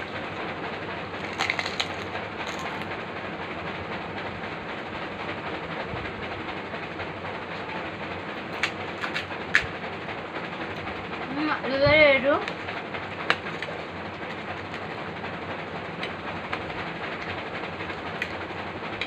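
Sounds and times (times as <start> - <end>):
crisp shell crackling: 1.2 - 2.8.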